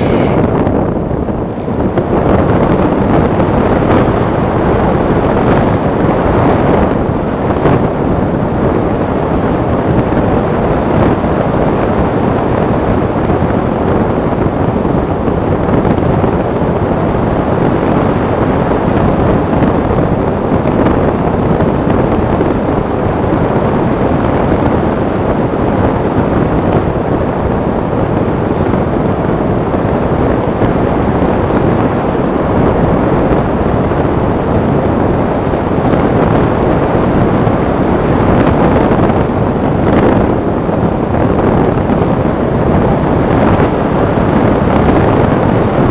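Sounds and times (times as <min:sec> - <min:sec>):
wind rushing over microphone: 0:00.0 - 0:45.9.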